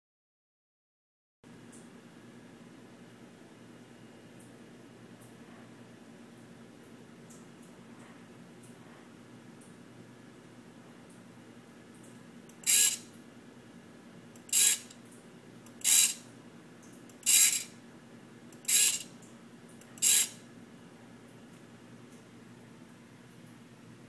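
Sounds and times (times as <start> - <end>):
servo motor whirring: 12.6 - 13.0, 14.5 - 14.9, 15.8 - 16.2, 17.2 - 17.7, 18.7 - 19.0, 20.0 - 20.4.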